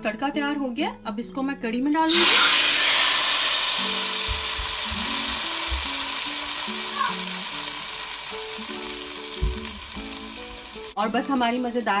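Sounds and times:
hot oil sizzling in curry: 2.0 - 12.0
background music with a beat: 4.0 - 6.6, 8.8 - 10.9.

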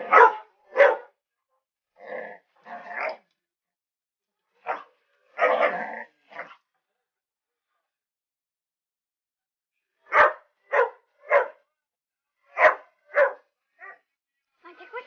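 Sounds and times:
puppy barking: 0.0 - 1.2, 4.6 - 6.5, 10.1 - 11.6, 12.5 - 14.0.

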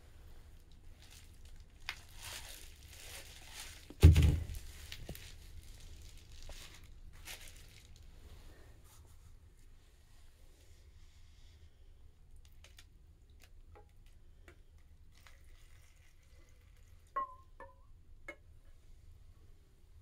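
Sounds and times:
plastic tub rustling and scraping: 1.2 - 7.9.

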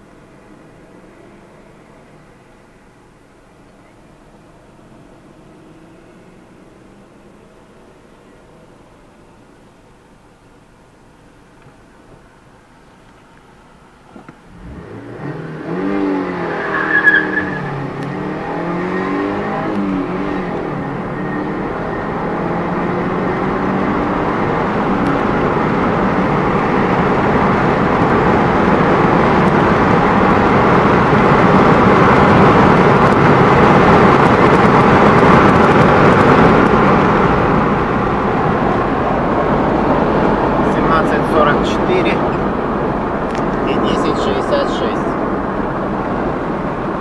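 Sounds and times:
road noise: 0.0 - 47.0
car engine accelerating: 11.5 - 47.0
brief high squeal: 16.7 - 17.7.

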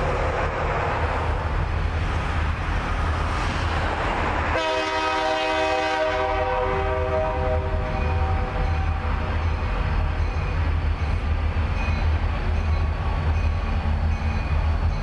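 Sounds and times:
diesel locomotive rumbling: 0.0 - 15.0
train horn blast: 4.5 - 9.2.

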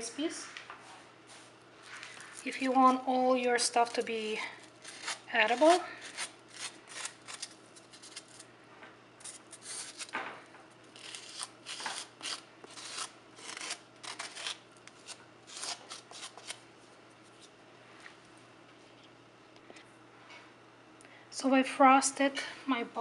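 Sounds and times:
frosting scraping on styrofoam: 1.8 - 8.5, 9.2 - 10.1, 11.0 - 16.6.

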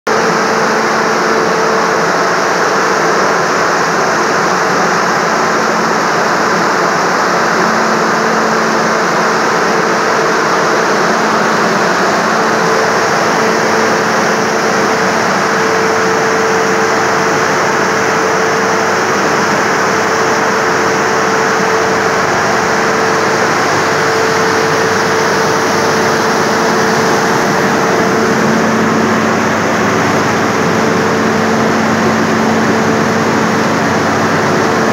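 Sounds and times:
large fan rushing air: 0.1 - 34.9
low fan hum: 0.1 - 34.9.

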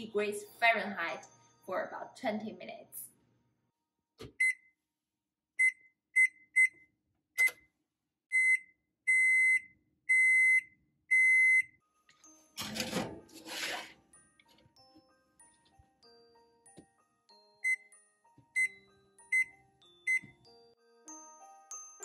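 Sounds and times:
oven control panel beeping: 7.4 - 7.6.

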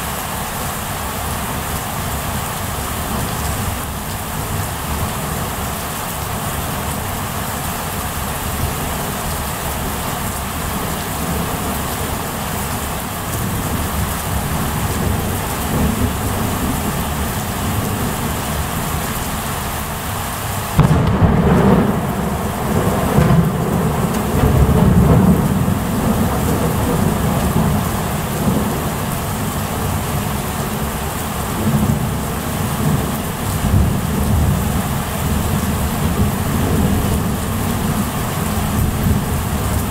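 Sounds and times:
steady rain: 0.0 - 39.9
thunderclap rumbling: 20.8 - 30.0.

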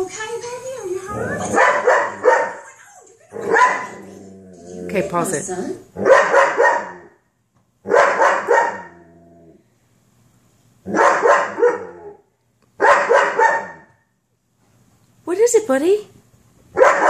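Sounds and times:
dog barking: 1.5 - 2.6, 3.4 - 4.0, 6.0 - 7.2, 7.8 - 8.9, 10.9 - 12.0, 12.8 - 13.9, 16.8 - 17.0.

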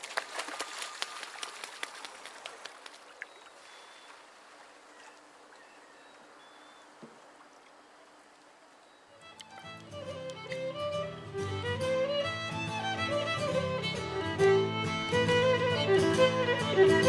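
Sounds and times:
bird splashing on water surface: 0.0 - 4.7.

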